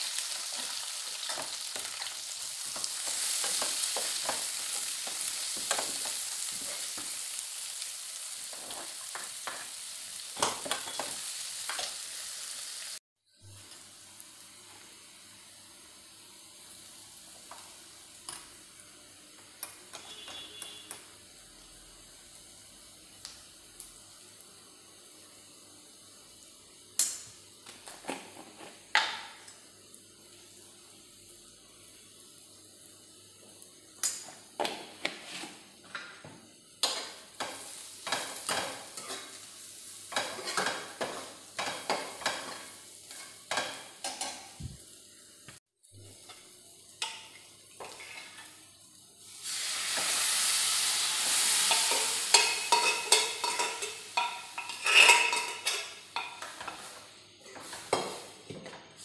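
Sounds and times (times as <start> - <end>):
onions sizzling in oil: 0.0 - 59.0
metal spatula scraping a pan: 47.8 - 48.6, 51.5 - 58.1.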